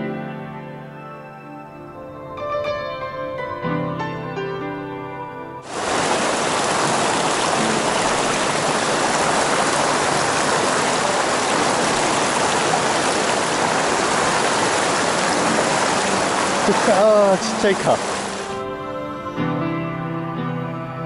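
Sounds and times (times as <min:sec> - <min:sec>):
stream rushing over boulders: 0:05.6 - 0:18.6.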